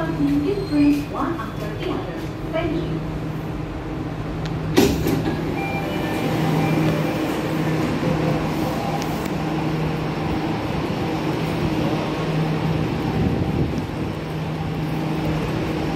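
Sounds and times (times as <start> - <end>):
sliding train doors clunk: 4.4 - 9.5.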